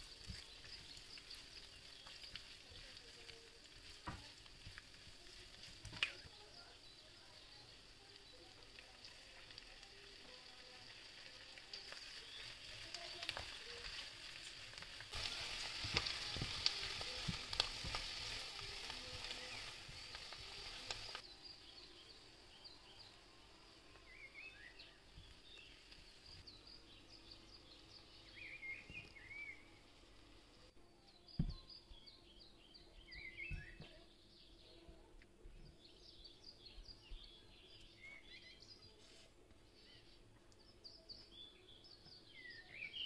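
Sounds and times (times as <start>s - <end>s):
food sizzling in a frying pan: 0.0s - 30.5s.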